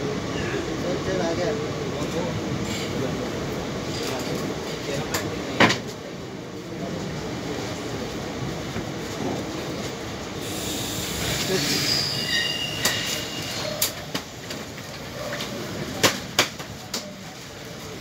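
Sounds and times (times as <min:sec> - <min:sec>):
train coaches rumbling on rails: 0:00.0 - 0:18.0
train wheels squealing: 0:10.6 - 0:14.0
wheels clacking on track: 0:12.7 - 0:17.2.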